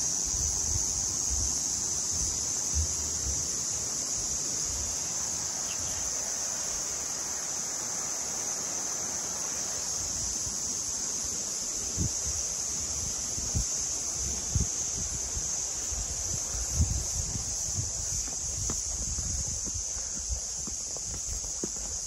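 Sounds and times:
insects chorus: 0.0s - 22.0s
wind buffeting microphone: 11.8s - 22.0s.

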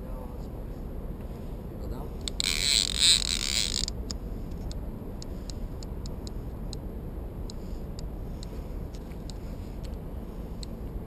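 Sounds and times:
steady low rumble: 0.0s - 11.0s
fishing reel ticking: 2.2s - 4.0s.

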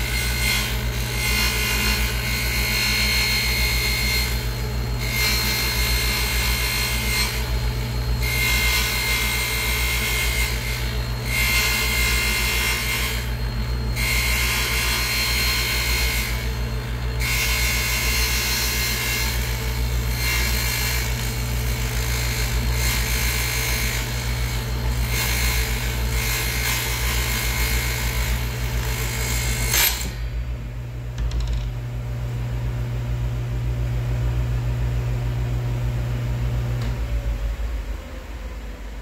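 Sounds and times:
table saw motor hum: 0.0s - 30.4s.

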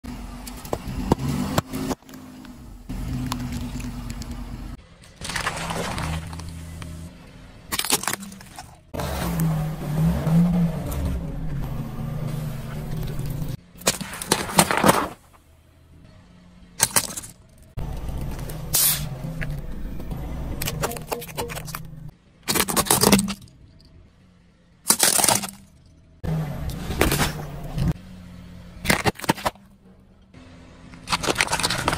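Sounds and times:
car engine running low: 0.0s - 31.9s
objects crushed under tyre: 5.0s - 6.8s, 7.7s - 9.0s, 13.8s - 15.4s, 16.8s - 17.6s, 20.7s - 23.5s, 24.8s - 26.0s, 28.8s - 29.8s, 31.0s - 31.9s.

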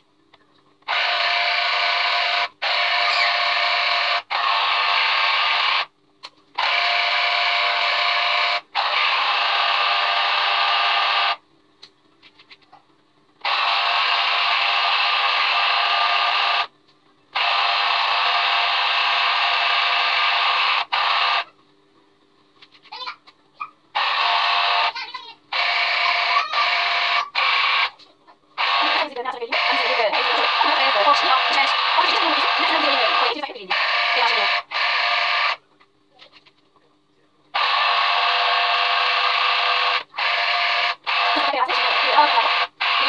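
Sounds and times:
citrus juicer motor whirring: 0.8s - 5.9s, 6.5s - 11.4s, 13.4s - 16.7s, 17.3s - 21.5s, 23.9s - 28.0s, 28.6s - 35.6s, 37.6s - 43.0s.

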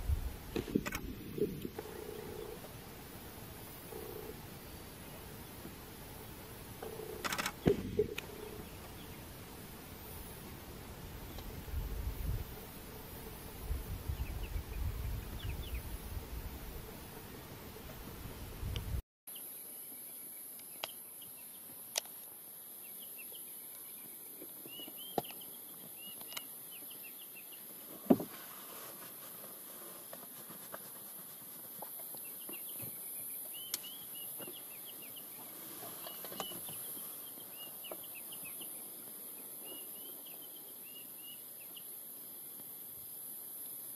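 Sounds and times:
sharp clicks: 0.8s - 1.1s, 6.8s - 8.3s.

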